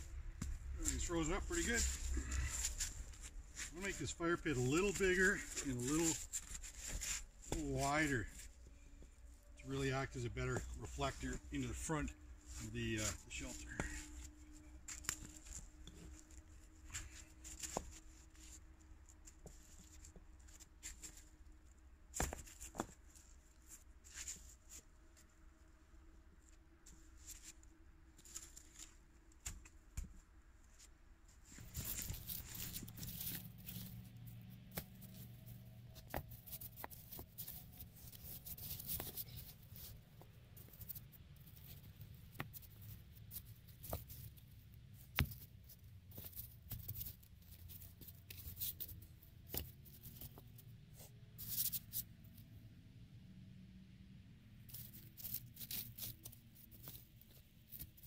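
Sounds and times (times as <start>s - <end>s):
hands rustling through leaves and snow: 0.5s - 8.5s, 31.4s - 41.8s.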